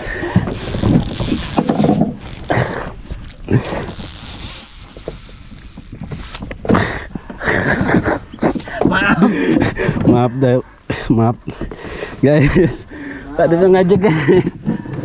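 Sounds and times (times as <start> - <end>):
insects buzzing: 0.5 - 2.9, 3.5 - 6.5.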